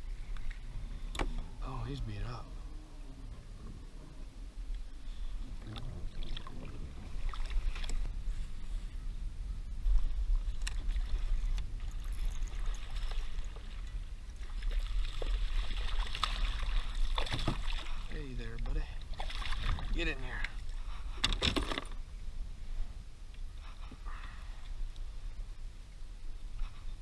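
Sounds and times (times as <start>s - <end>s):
water sloshing: 5.5s - 8.1s, 10.0s - 22.0s.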